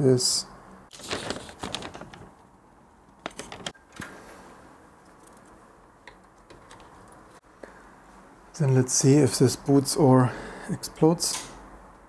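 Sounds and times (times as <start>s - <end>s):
paper handling clicks and rustles: 0.9s - 4.2s.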